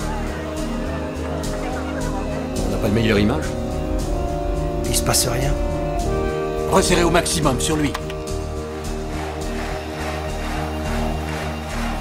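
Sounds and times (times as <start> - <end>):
low bass line: 0.0 - 9.9
sustained chords: 0.0 - 12.0.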